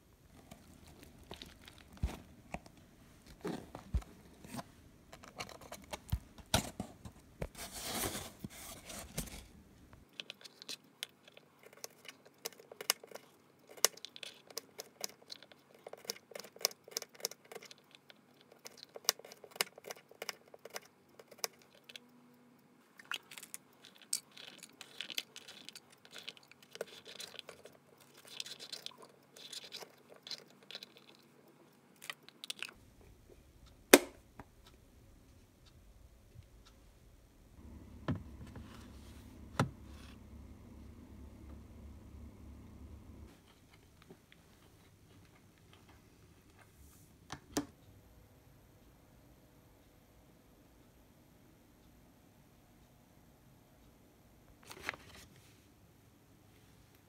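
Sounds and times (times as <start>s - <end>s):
cardboard box scraping and rustling: 7.6s - 9.5s.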